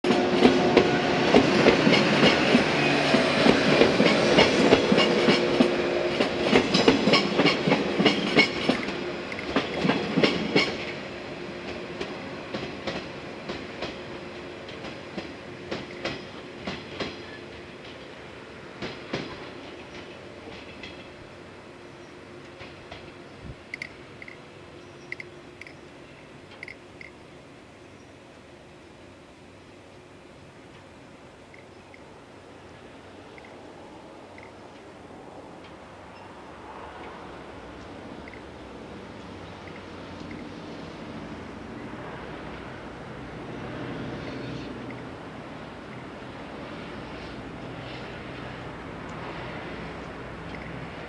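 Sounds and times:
train running hum: 0.0s - 51.0s
train wheels clacking over rail joints: 0.1s - 11.0s, 11.6s - 18.2s, 18.8s - 21.2s.

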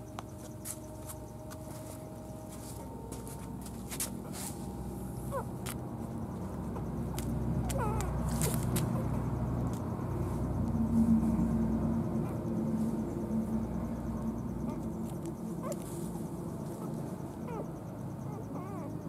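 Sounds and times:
steady low hum: 0.0s - 19.0s
puppy squeaking: 5.3s - 5.5s, 7.1s - 9.2s, 14.7s - 14.9s, 15.6s - 15.8s, 17.4s - 18.9s.

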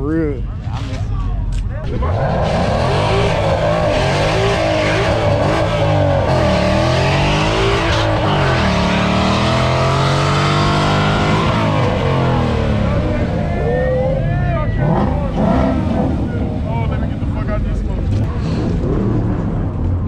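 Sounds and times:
vehicle engine revving: 1.8s - 20.0s.

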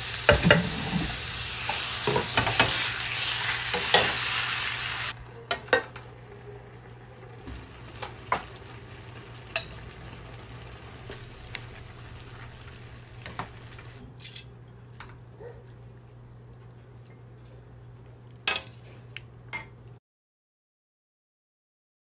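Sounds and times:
meat and vegetables sizzling in wok: 0.0s - 5.2s, 7.5s - 14.0s.

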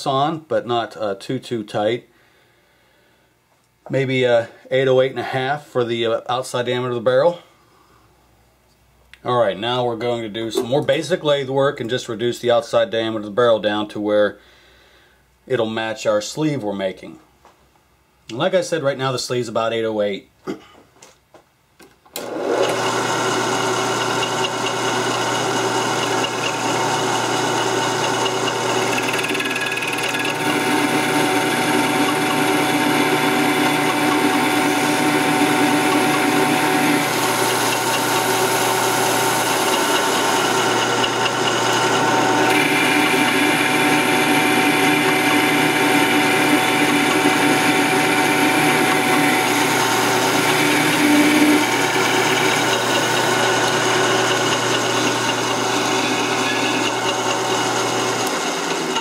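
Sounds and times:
metal cutting noise: 22.2s - 59.0s
metal lathe whining: 22.2s - 59.0s.

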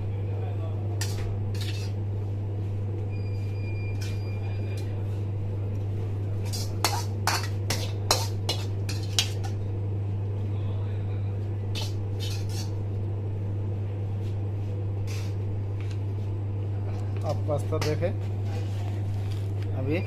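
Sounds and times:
steady low hum: 0.0s - 20.0s
metal spoon scraping a wok: 1.0s - 2.0s, 6.5s - 9.5s, 11.8s - 12.8s.

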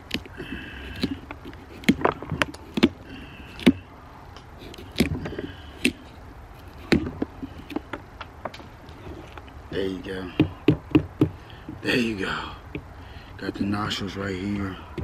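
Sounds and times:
knife cutting through pumpkin: 0.1s - 3.9s, 4.6s - 7.9s.

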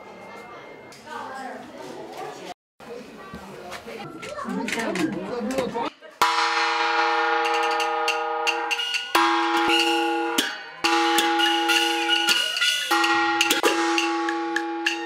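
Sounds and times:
sharp percussion strikes: 6.2s - 15.0s.

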